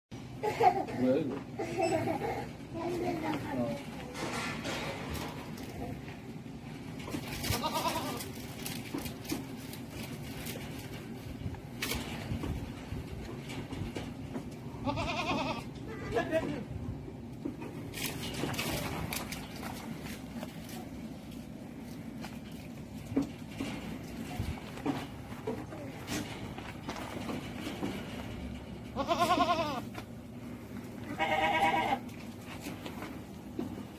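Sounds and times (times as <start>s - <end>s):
goat bleating: 7.2s - 8.4s, 14.8s - 16.7s, 28.9s - 30.0s, 31.0s - 32.2s.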